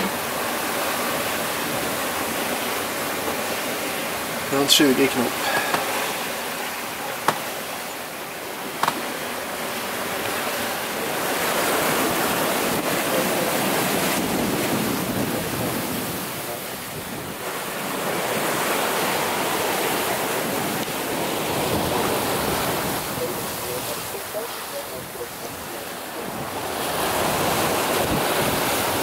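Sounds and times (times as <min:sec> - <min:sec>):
water rushing along a hull: 0:00.0 - 0:29.0
wind on microphone: 0:10.3 - 0:29.0.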